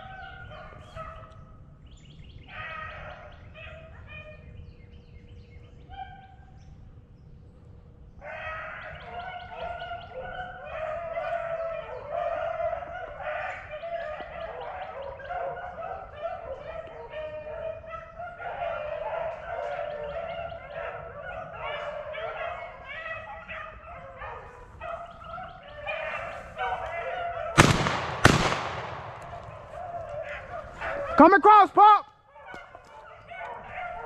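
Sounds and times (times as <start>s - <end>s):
dogs baying: 0.0s - 1.5s, 2.4s - 4.5s, 5.7s - 6.7s, 8.2s - 31.6s, 32.2s - 34.0s.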